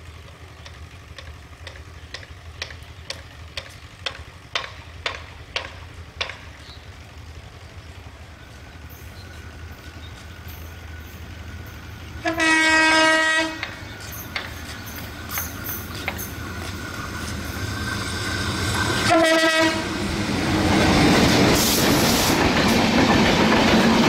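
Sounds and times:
diesel locomotive engine rumble: 0:00.0 - 0:24.0
sharp ticks: 0:00.2 - 0:06.6
locomotive horn: 0:12.2 - 0:13.8, 0:19.0 - 0:20.0.

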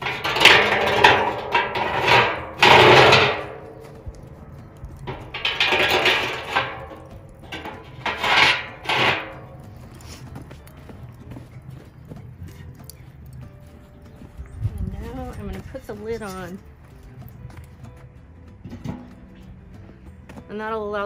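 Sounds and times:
metal rods scraping and clanking: 0:00.0 - 0:10.7.

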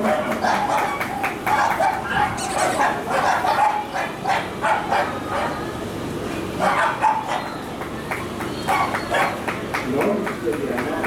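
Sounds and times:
dog barking: 0:00.0 - 0:05.6, 0:06.6 - 0:07.5, 0:08.7 - 0:09.4.

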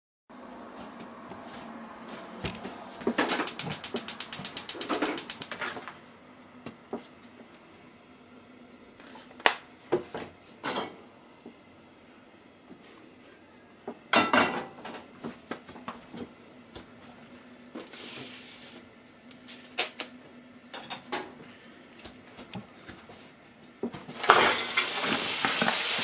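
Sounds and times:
gas stove igniter clicking: 0:03.4 - 0:05.5.

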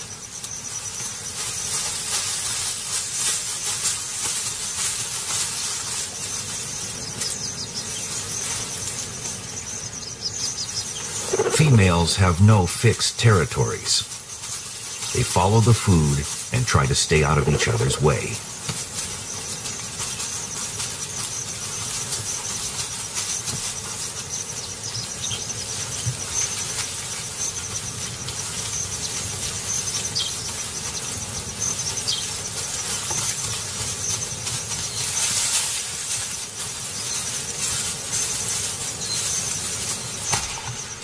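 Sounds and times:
high-pitched insect drone: 0:05.4 - 0:11.6
even hiss: 0:10.4 - 0:30.8.

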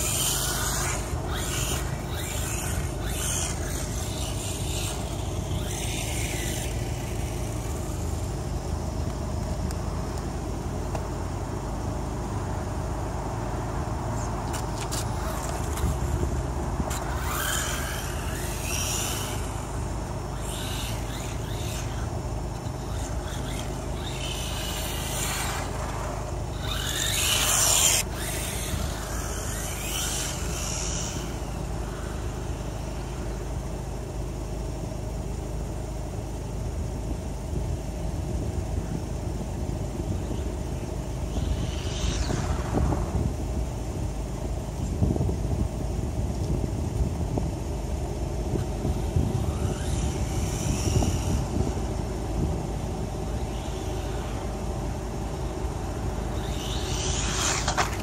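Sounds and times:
electric motor whining: 0:00.0 - 0:10.2, 0:14.2 - 0:34.4, 0:40.1 - 0:44.9, 0:48.5 - 0:58.0
steady low rumble: 0:00.0 - 0:58.0.

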